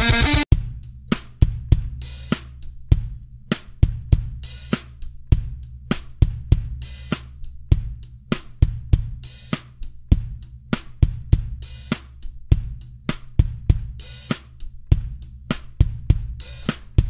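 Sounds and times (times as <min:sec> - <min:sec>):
low bass line: 0:00.0 - 0:00.8
drum beat: 0:00.0 - 0:17.0.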